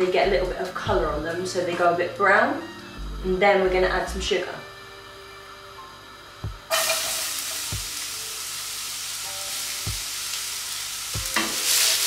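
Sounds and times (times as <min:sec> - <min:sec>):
onions sizzling in a pan: 0:04.8 - 0:12.0
dull low thumps: 0:06.4 - 0:06.7.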